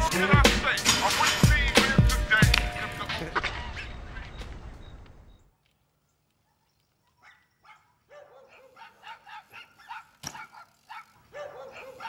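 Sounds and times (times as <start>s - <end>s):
dog yapping: 6.5s - 12.0s.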